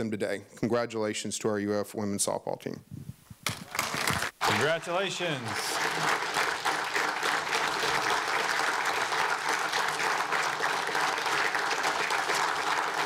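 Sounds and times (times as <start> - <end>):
crowd applauding: 3.6 - 13.0.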